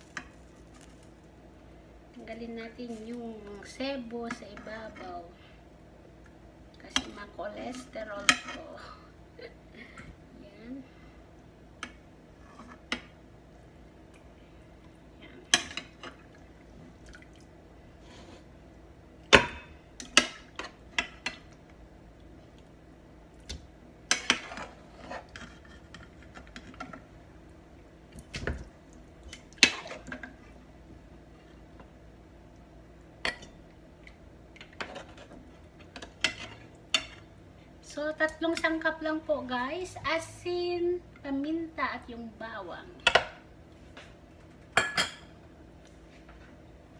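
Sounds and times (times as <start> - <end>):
broth dripping and splashing: 16.2 - 17.5.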